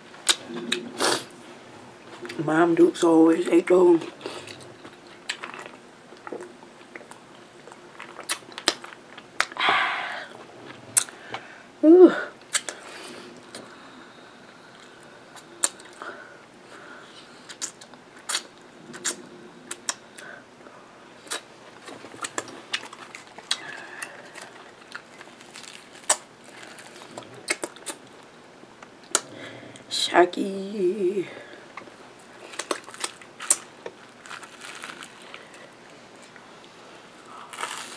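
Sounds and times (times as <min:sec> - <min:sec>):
chewing: 0:04.0 - 0:09.6, 0:21.2 - 0:29.3, 0:31.7 - 0:36.5, 0:37.2 - 0:37.9.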